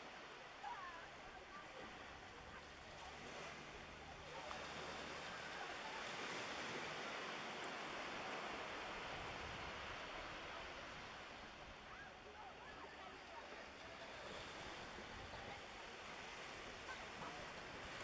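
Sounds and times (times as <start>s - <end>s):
small waves washing on shore: 0.0s - 18.0s.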